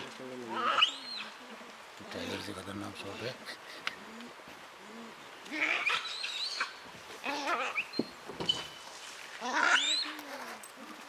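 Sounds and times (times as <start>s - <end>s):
animals squealing in a fight: 0.5s - 1.6s, 5.5s - 8.7s, 9.4s - 10.6s.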